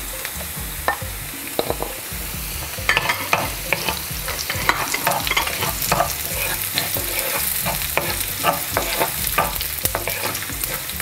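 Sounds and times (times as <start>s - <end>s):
garlic sizzling in oil: 0.0s - 11.0s
spatula scraping pan: 2.6s - 11.0s.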